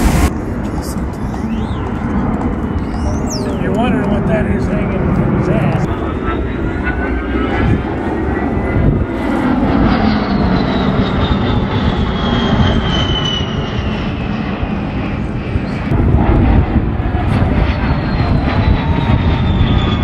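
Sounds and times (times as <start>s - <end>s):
high whine falling in pitch: 0.0s - 0.4s
jet engines roaring past: 0.0s - 20.0s.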